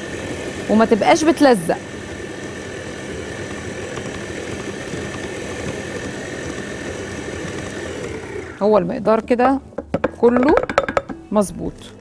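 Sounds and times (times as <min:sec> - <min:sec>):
electric stand mixer running: 0:00.0 - 0:09.0.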